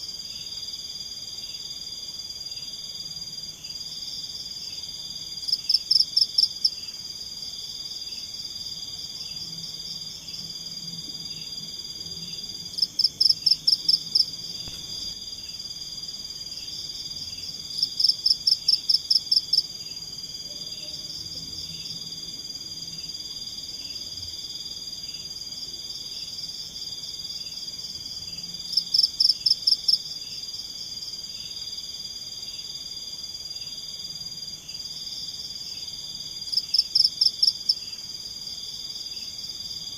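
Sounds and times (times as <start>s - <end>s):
crickets trilling: 0.0s - 39.9s
loud rapid pulsed insect calls: 3.8s - 20.1s.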